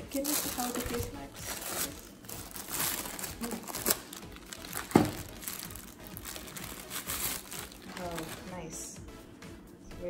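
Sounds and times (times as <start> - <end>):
plastic film crinkling: 0.0 - 8.7.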